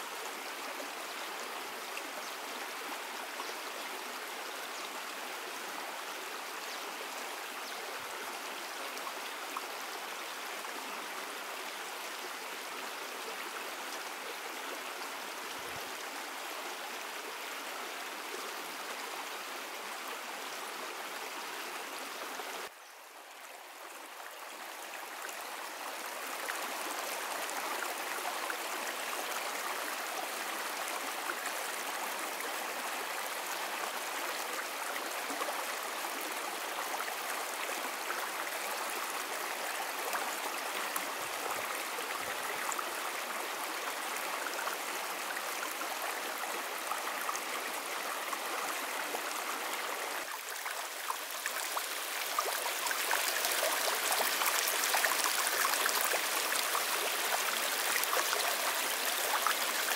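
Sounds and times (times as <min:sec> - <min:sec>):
stream water running: 0:00.0 - 0:59.9.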